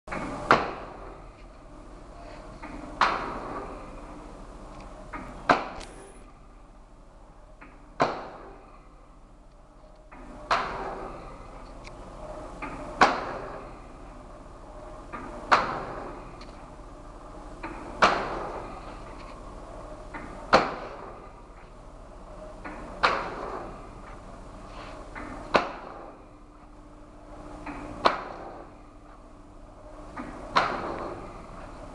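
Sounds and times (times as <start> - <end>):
low steady machine hum: 0.1 - 31.9
machine press clacking: 2.6 - 3.9, 10.1 - 11.4, 12.6 - 13.8, 15.0 - 16.6, 17.6 - 19.1, 20.1 - 21.4, 22.6 - 24.2, 30.2 - 31.6
loud machine press stroke: 5.2 - 6.4.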